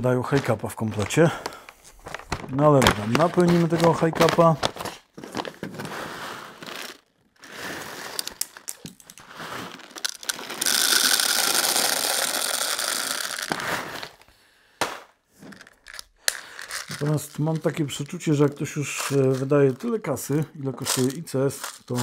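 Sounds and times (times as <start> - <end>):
plastic pellets rattling into magazine: 8.1 - 14.2, 15.4 - 22.0.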